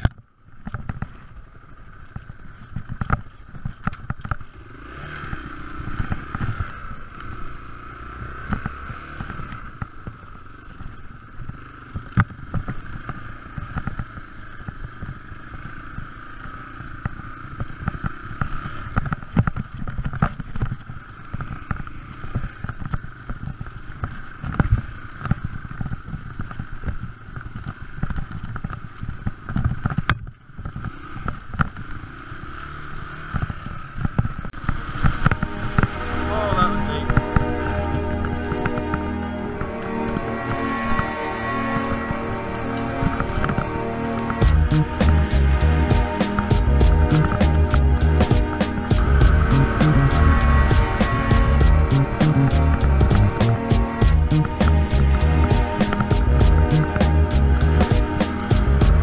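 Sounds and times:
dirt bike engine running: 0.0 - 59.0
knocks and thuds from bumps: 44.4 - 59.0.

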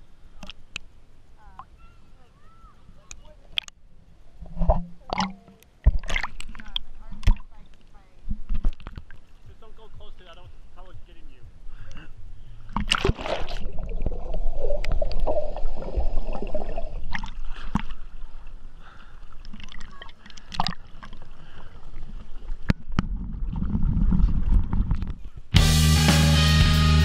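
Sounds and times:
water sloshing and gurgling: 3.0 - 9.8, 11.5 - 25.5
water splashes: 4.4 - 10.4, 12.6 - 25.3.

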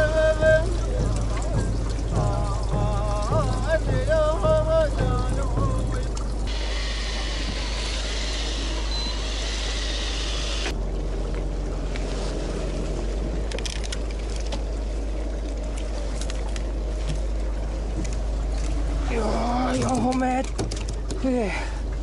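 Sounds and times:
boat engine idling: 0.0 - 22.0
water sloshing at hull: 0.0 - 22.0
bright rushing hiss: 6.5 - 10.7.

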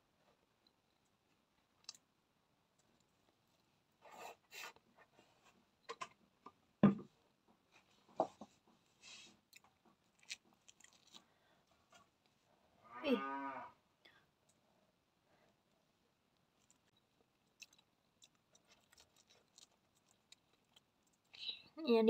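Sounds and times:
person chewing: 9.3 - 12.2, 16.3 - 21.5.

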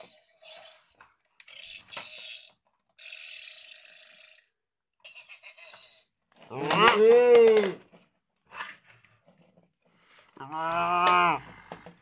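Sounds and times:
toy dinosaur burp sound effects: 0.0 - 7.0.

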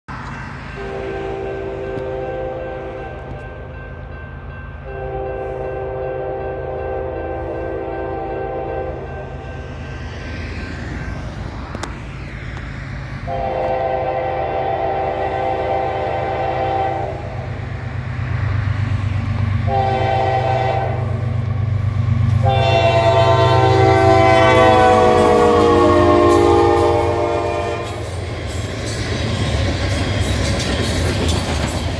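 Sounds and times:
diesel locomotive rumble: 0.1 - 31.9
locomotive horn blasts: 0.8 - 3.4, 4.9 - 9.3, 13.3 - 17.4, 19.6 - 21.3, 22.4 - 28.1.

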